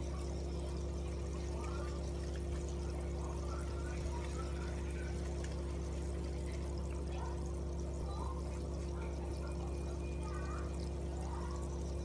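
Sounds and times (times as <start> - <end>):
pond water bubbling and splashing: 0.0 - 12.0
steady low hum: 0.0 - 12.0.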